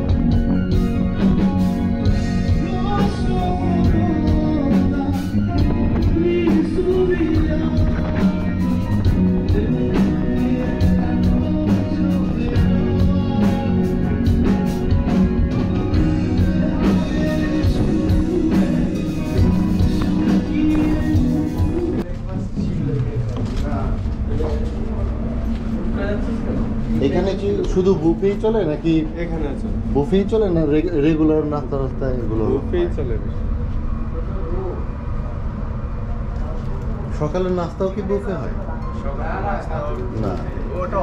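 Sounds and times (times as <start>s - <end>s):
drum kit: 0.0s - 22.0s
electric guitar: 0.0s - 22.0s
bass guitar: 0.0s - 22.1s
keyboard: 0.0s - 41.0s
person singing: 2.2s - 22.0s.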